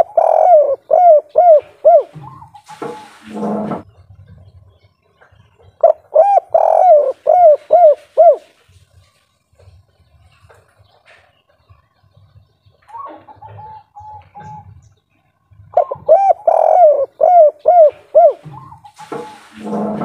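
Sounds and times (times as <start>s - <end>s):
dove cooing: 0.0s - 3.8s, 5.8s - 8.5s, 12.9s - 14.8s, 15.7s - 20.0s.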